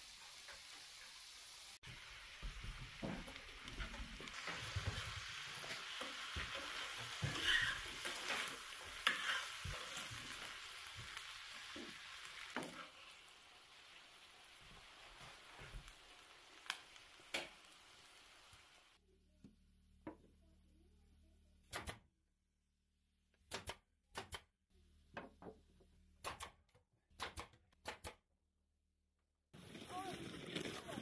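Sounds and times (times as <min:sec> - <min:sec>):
food sizzling in a skillet: 0:00.0 - 0:19.0.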